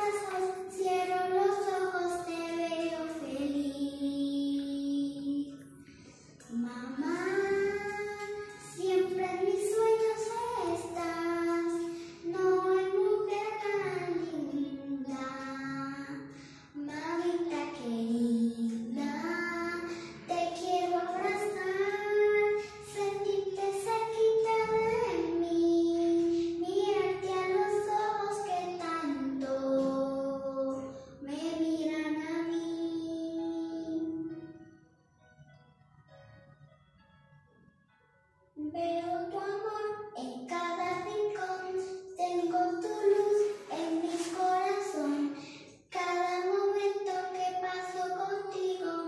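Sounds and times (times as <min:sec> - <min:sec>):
girl singing slow song: 0:00.0 - 0:34.8, 0:38.5 - 0:49.0.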